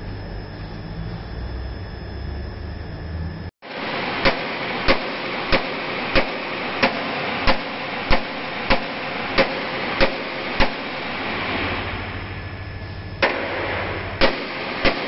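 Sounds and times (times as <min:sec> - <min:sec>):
steady rushing noise: 0:03.6 - 0:15.0
sledgehammer striking steel: 0:04.2 - 0:12.0, 0:13.2 - 0:15.0.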